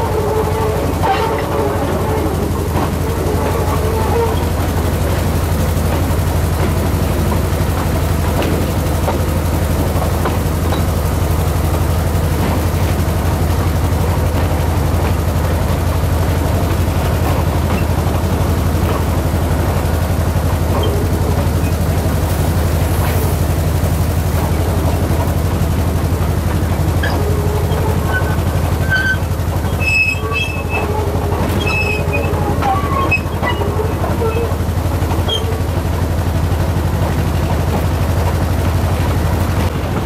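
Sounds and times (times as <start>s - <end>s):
train engine droning: 0.0s - 40.0s.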